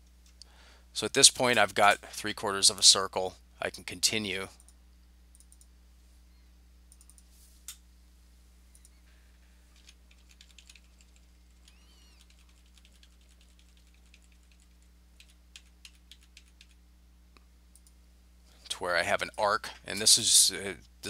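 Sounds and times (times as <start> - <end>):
keyboard and mouse clicks: 6.9 - 7.8.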